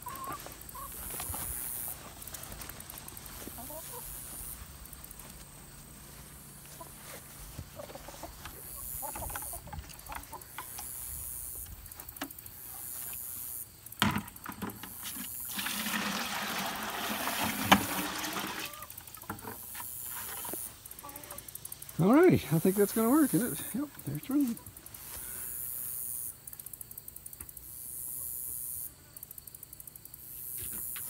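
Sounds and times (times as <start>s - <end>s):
water splashing into bucket: 14.7s - 18.9s
bucket knock: 15.5s - 18.7s.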